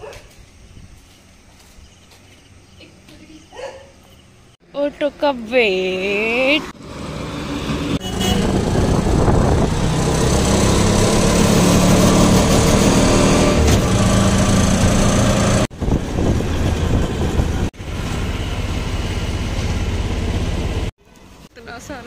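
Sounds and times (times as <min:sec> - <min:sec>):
wind and road noise: 0:00.0 - 0:22.0
auto-rickshaw engine running: 0:06.0 - 0:21.4.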